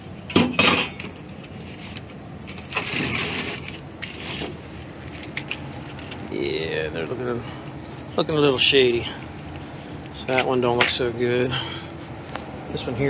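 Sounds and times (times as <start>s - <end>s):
filter frame scraping and rustling: 0.9s - 6.3s.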